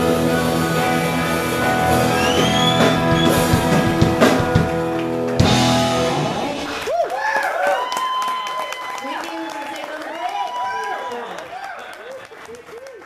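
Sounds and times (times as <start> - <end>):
live rock band playing: 0.0 - 6.9.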